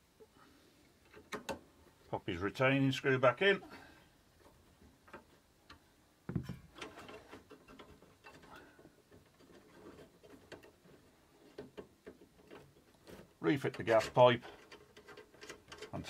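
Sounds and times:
dull knock: 6.3s - 6.6s
metal fittings being handled: 6.3s - 16.0s.

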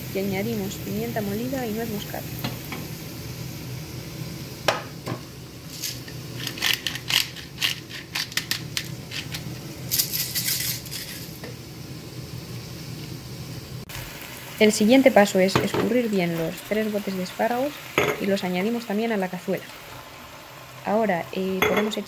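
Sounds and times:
pepper mill grinding: 5.7s - 11.5s.

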